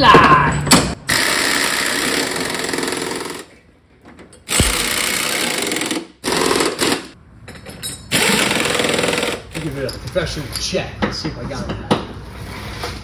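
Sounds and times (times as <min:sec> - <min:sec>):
impact wrench hammering: 0:04.5 - 0:07.2.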